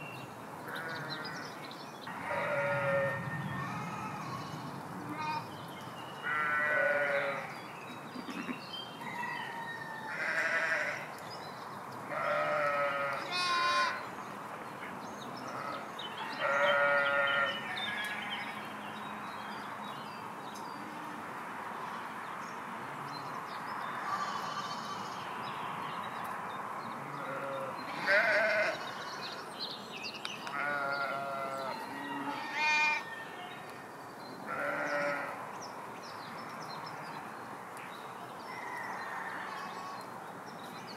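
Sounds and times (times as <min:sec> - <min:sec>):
sheep bleating: 0:02.1 - 0:05.5, 0:06.2 - 0:07.5, 0:10.1 - 0:11.0, 0:12.1 - 0:14.0, 0:16.4 - 0:18.5, 0:27.2 - 0:29.1, 0:30.5 - 0:33.1, 0:34.5 - 0:35.3.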